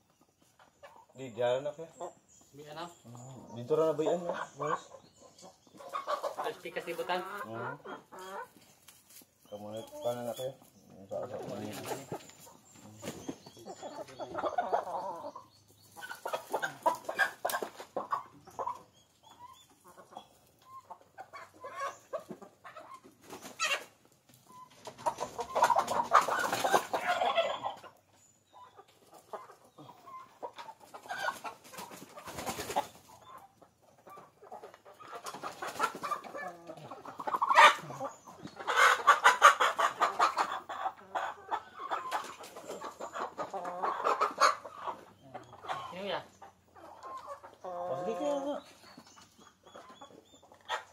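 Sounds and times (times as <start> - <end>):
chickens clucking: 0.0 - 50.9
loud chicken calls: 11.7 - 48.8.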